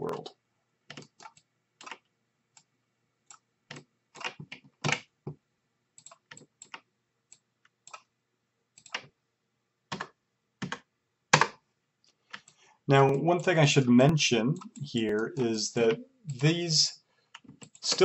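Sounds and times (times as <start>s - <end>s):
keyboard and mouse clicking: 0.9s - 2.7s, 3.3s - 5.1s, 6.0s - 8.1s, 8.8s - 9.1s, 9.9s - 11.6s, 12.3s - 13.2s, 17.4s - 18.0s.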